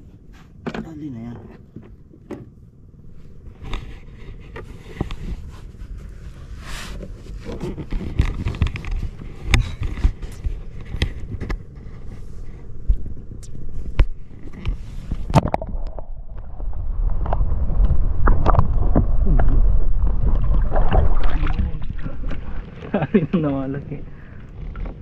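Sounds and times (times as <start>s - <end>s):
steady low rumble: 0.0s - 25.0s
knocks and clicks on wooden boat: 0.6s - 2.6s.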